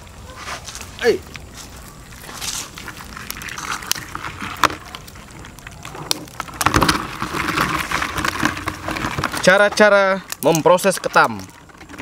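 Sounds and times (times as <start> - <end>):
crab shells clicking on wood: 2.8 - 12.0
crabs clattering in metal pan: 3.0 - 12.0.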